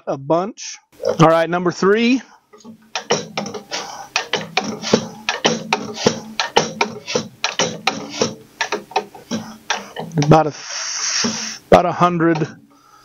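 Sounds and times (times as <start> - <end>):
fuel injector hissing pops: 2.6 - 11.7.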